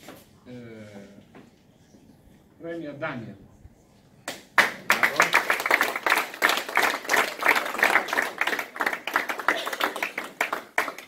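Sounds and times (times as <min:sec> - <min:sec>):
people applauding: 0:04.3 - 0:11.0.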